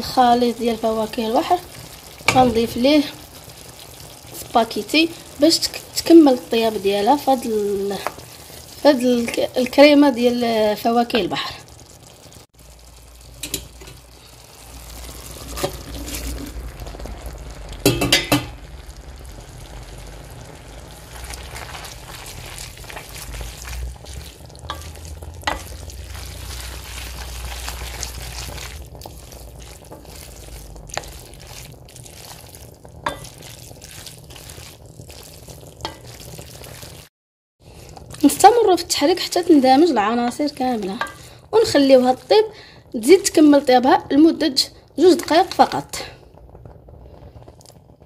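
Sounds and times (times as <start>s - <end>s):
spoon knocking against pot: 17.8s - 18.5s
spoon stirring pasta in sauce: 21.0s - 37.1s, 37.7s - 42.4s.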